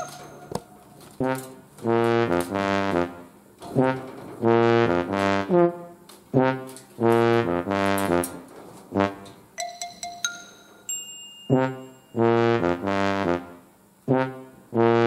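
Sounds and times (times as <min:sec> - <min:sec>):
slow brass-like melody: 0:01.1 - 0:09.4, 0:11.5 - 0:15.0.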